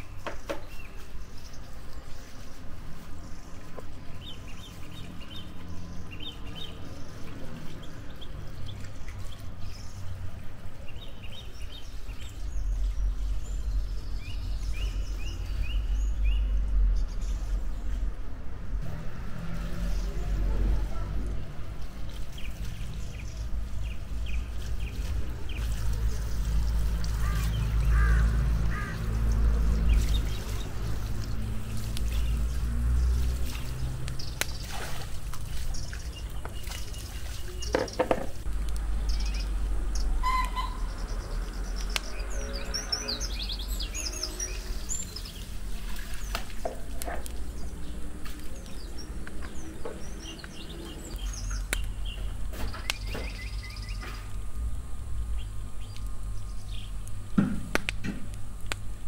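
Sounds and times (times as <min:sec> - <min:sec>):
water pouring from hose: 0:00.0 - 0:10.7, 0:18.8 - 0:54.8
birds chirping: 0:00.0 - 0:18.4, 0:19.6 - 0:57.3.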